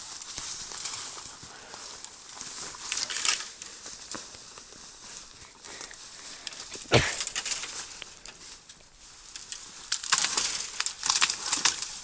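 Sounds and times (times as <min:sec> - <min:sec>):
dry leaves and twigs crunching: 0:00.0 - 0:12.0
sharp knock: 0:06.9 - 0:07.2.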